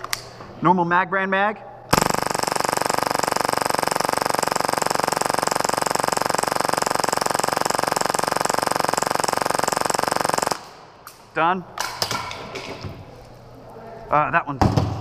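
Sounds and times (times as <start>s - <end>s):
airsoft pistol rapid firing: 1.9s - 10.9s.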